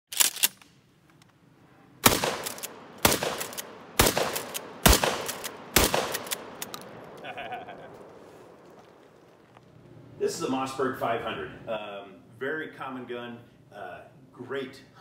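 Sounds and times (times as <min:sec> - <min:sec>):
shotgun shots echoing: 0:02.0 - 0:07.2.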